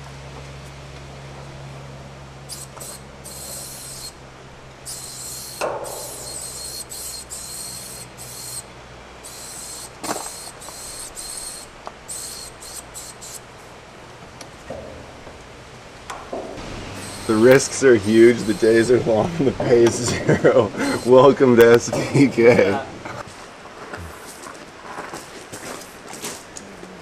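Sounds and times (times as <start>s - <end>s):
spray paint can spraying: 2.5s - 4.2s, 4.8s - 13.5s, 17.0s - 18.9s.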